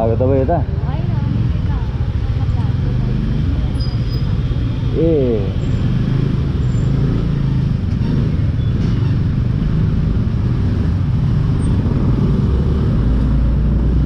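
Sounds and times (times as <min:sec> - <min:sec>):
scooter and motorbike engines: 0:00.0 - 0:14.0.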